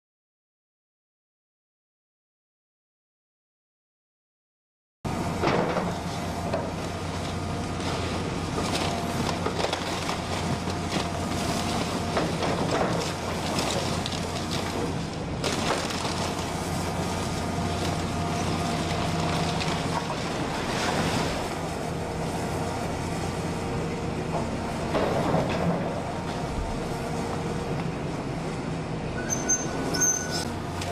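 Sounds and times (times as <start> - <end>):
excavator diesel engine running: 5.1 - 30.9
timber cracking and crunching: 6.8 - 21.5
debris falling: 8.6 - 16.7.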